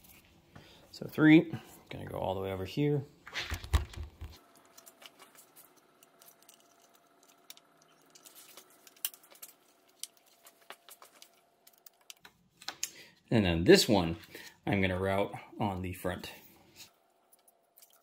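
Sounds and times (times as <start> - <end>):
faint clicks and rustles of wires: 3.4 - 13.3, 16.5 - 18.0.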